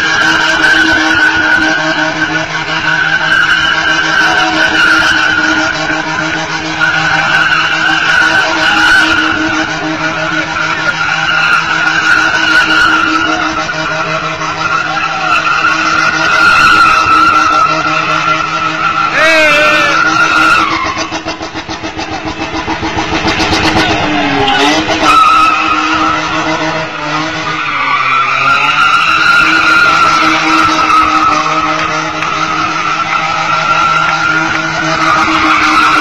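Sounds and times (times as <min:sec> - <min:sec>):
car engine high revs: 0:00.0 - 0:36.0
tyres squealing on pavement: 0:00.0 - 0:36.0.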